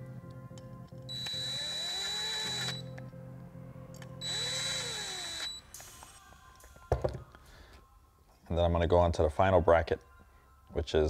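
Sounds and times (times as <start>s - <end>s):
cordless drill driving bolts: 1.1s - 2.8s, 4.2s - 5.6s.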